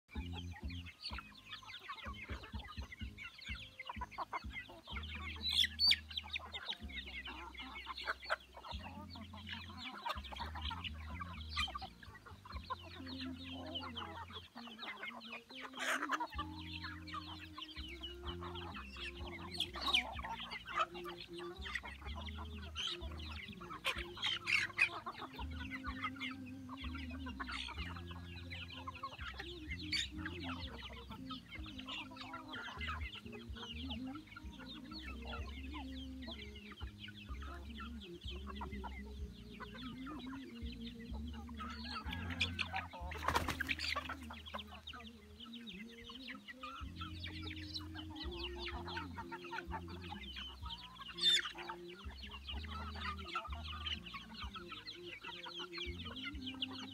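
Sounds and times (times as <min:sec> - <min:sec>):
chickens clucking: 0:00.0 - 0:56.9.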